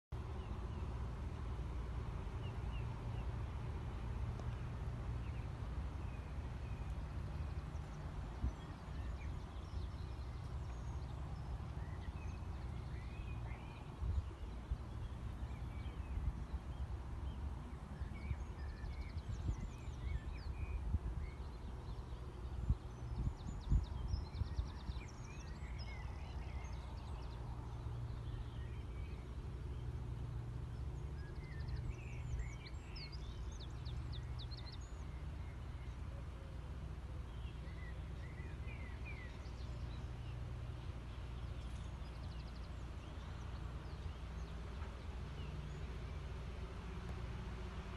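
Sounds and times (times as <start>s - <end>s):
small birds chirping: 2.2s - 47.5s
wind buffeting microphone: 3.8s - 29.3s.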